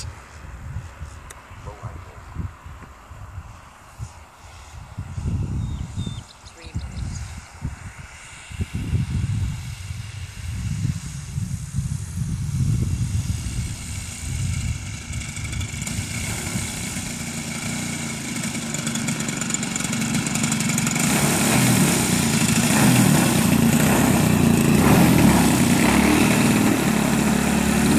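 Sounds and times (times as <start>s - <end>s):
model plane engine idling: 7.9s - 27.9s.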